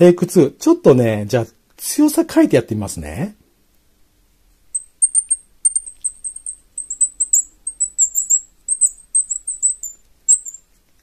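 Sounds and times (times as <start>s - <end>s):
bird call squeaking chirps: 4.7s - 10.7s.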